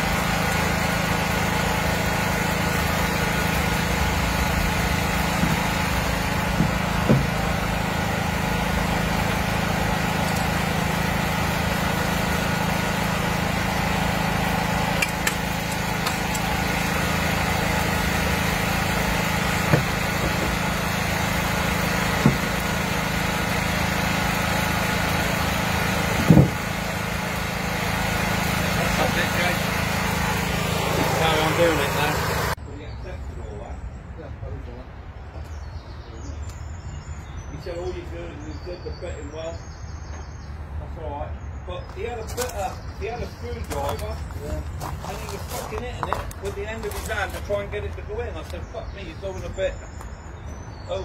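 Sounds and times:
small engine running: 0.0 - 32.6, 42.2 - 48.2.

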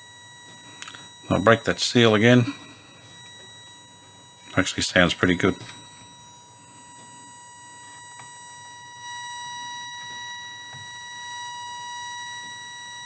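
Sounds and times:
radio test tone: 0.0 - 13.0
radio hiss: 0.7 - 3.2, 4.5 - 5.8.

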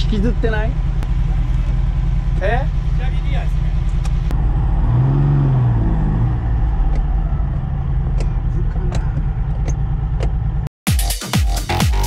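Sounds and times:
car engine idling: 0.0 - 5.1, 6.1 - 10.7.

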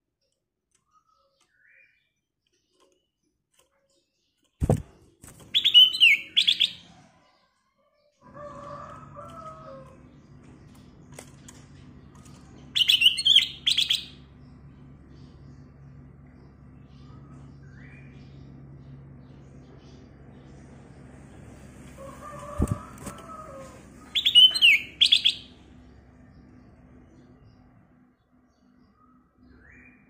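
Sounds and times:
bird singing: 0.0 - 4.8, 5.4 - 21.4, 22.0 - 30.0
low steady hum: 8.3 - 30.0.

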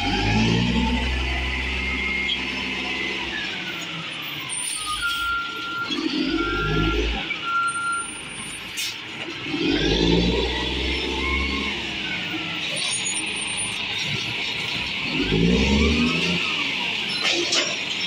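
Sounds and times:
diesel truck engine revving: 0.0 - 4.4, 5.4 - 7.9, 9.1 - 17.2
reversing alarm beeps: 1.6 - 8.9.

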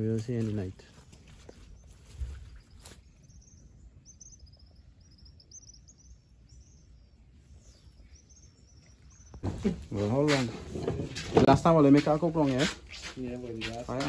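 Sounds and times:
high chirping calls: 1.5 - 10.5.

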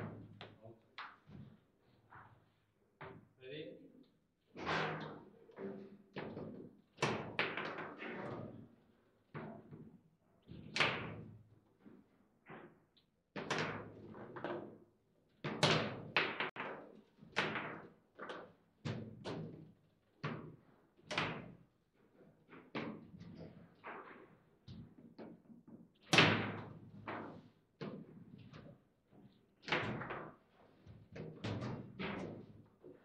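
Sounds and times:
foosball knocks and clacks: 15.5 - 16.8.

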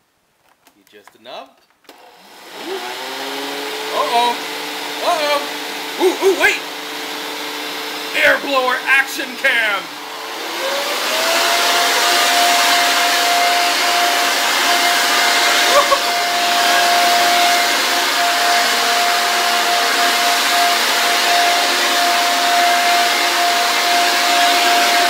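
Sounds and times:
air blower motor whine: 1.9 - 25.0
rush of blowing air: 9.8 - 25.0.

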